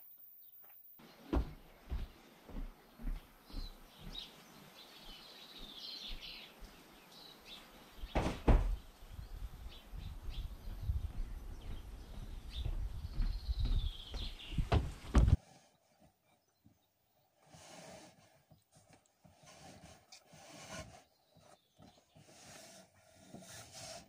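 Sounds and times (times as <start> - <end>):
birds chirping: 0.4 - 23.8
loud thud: 8.1 - 8.8.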